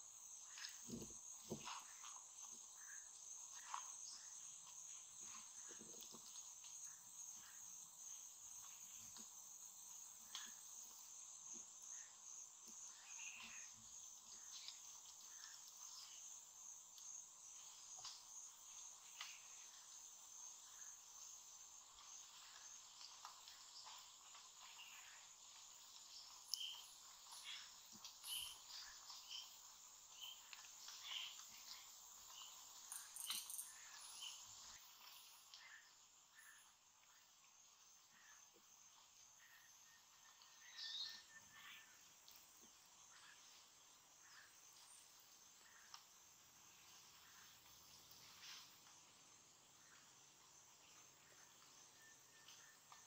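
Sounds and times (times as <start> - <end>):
high-pitched insect drone: 10.0 - 42.3
bird chirps: 26.2 - 37.3, 39.4 - 42.1.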